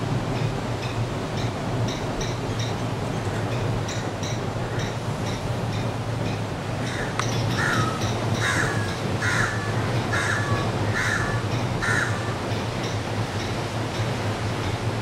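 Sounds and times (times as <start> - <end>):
crow cawing: 6.8 - 12.4.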